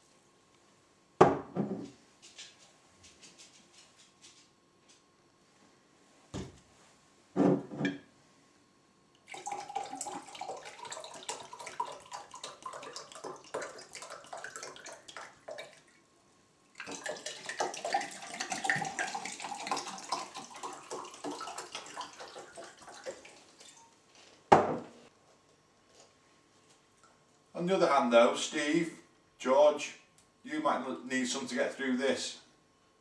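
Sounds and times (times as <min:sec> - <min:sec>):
liquid pouring into glass: 0:09.2 - 0:15.9, 0:16.7 - 0:23.8.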